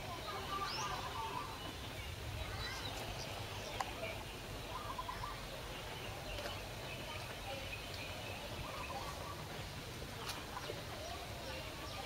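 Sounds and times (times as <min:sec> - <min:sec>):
distant voices: 0:00.0 - 0:12.0
low background noise: 0:00.0 - 0:12.0
faint bird chirps: 0:00.1 - 0:09.6.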